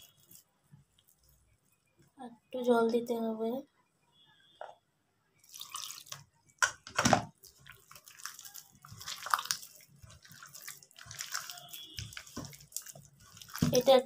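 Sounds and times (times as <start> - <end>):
water poured into steel bowl: 5.4 - 6.2
hand squelching wet batter: 5.4 - 6.7, 7.3 - 14.0.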